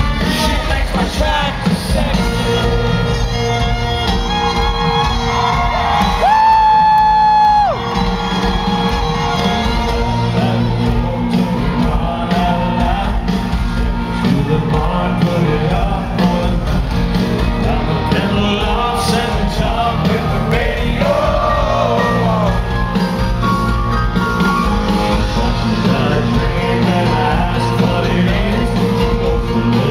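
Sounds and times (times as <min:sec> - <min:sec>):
man singing: 0:00.0 - 0:03.7, 0:09.0 - 0:23.1, 0:24.9 - 0:29.9
crowd shouting and whooping: 0:00.0 - 0:13.5, 0:16.8 - 0:27.5
live country band playing: 0:00.0 - 0:29.9.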